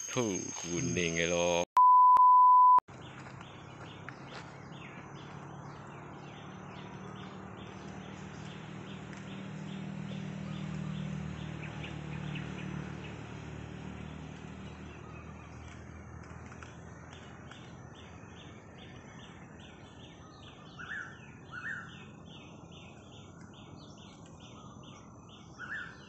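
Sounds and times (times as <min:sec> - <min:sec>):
short high chirps: 0:00.0 - 0:02.8
test tone beep: 0:00.0 - 0:02.8.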